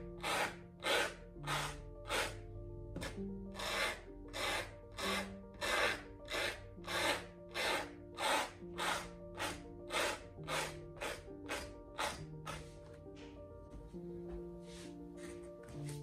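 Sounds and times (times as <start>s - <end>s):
paint tool rasping on canvas: 0.0s - 2.4s, 3.0s - 12.9s
soft background music: 0.0s - 16.0s.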